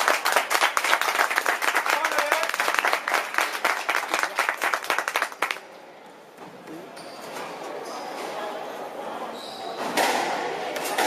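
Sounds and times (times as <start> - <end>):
spectators clapping: 0.0 - 5.6.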